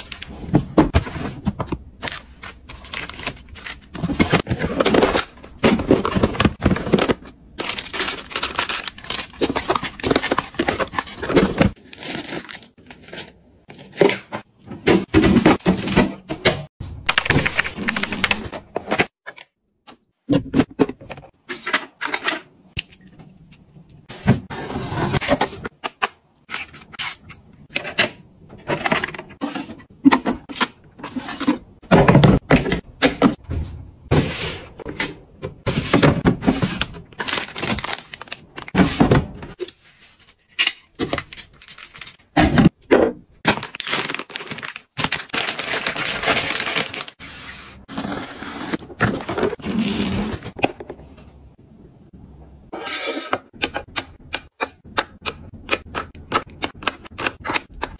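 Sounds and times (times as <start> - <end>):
plastic film crinkling: 43.6 - 47.2.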